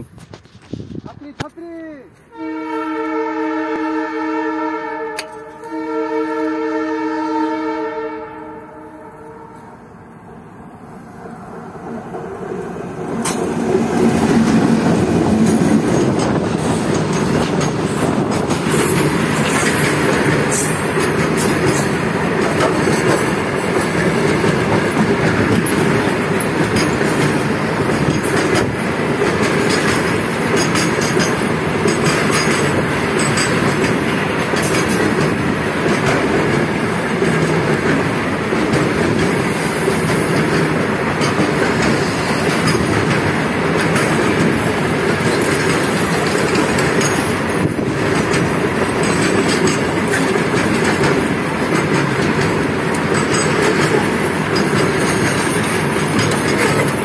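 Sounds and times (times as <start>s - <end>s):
freight train wheels rumbling on track: 0.0s - 57.0s.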